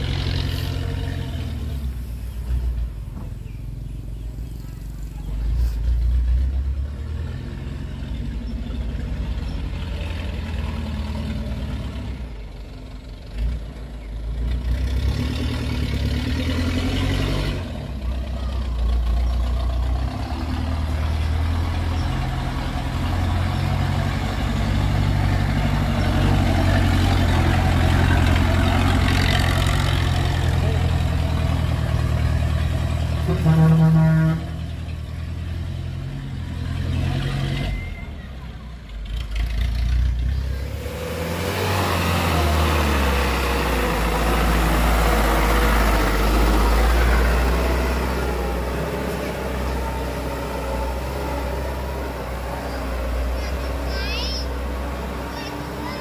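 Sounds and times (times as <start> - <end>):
diesel truck engine passing: 0.0 - 56.0
truck horn blast: 33.2 - 34.7.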